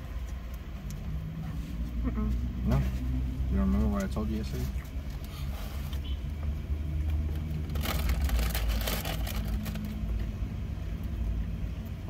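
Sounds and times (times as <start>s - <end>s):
paper crinkling: 7.5s - 10.0s.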